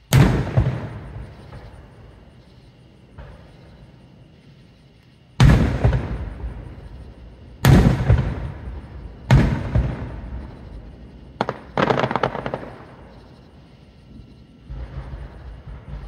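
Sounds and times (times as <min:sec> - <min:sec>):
firework crackling pops: 0:00.0 - 0:01.8, 0:05.0 - 0:06.9, 0:07.6 - 0:10.6, 0:11.4 - 0:13.2
fireworks booming with echo: 0:00.0 - 0:04.7, 0:05.4 - 0:16.0
firework bang: 0:00.1 - 0:01.8, 0:05.4 - 0:06.9, 0:07.6 - 0:10.7, 0:14.7 - 0:16.0.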